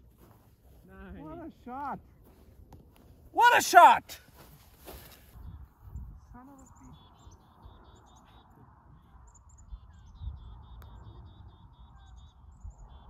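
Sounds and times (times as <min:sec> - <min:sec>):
small birds chirping: 0:04.8 - 0:13.0.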